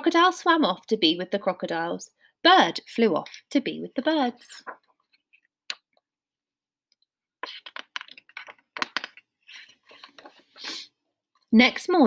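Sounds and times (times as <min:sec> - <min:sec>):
book pages rustling: 0:04.6 - 0:05.5, 0:07.4 - 0:10.6.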